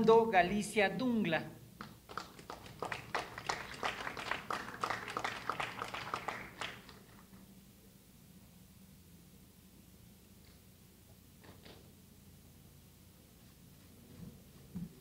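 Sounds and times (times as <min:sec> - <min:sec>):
scattered applause: 0:01.8 - 0:07.4.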